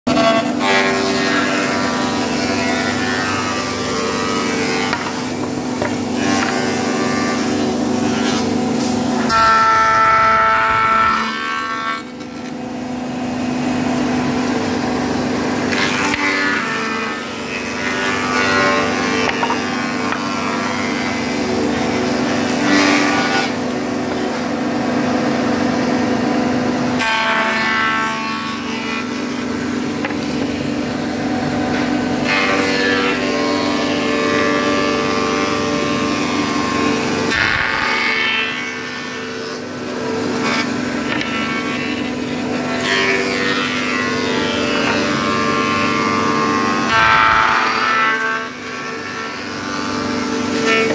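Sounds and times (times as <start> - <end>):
woodworking machines humming: 0.1 - 50.9
high cutter whine: 44.3 - 47.7.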